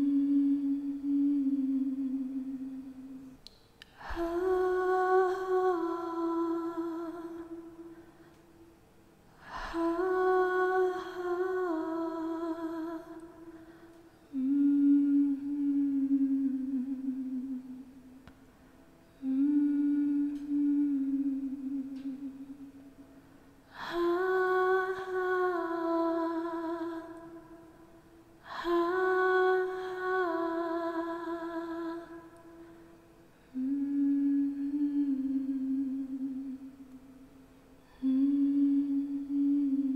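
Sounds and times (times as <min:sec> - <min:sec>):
woman humming: 0:00.0 - 0:03.4, 0:04.0 - 0:07.9, 0:14.2 - 0:18.0, 0:19.2 - 0:22.7, 0:33.5 - 0:36.8, 0:37.9 - 0:39.9.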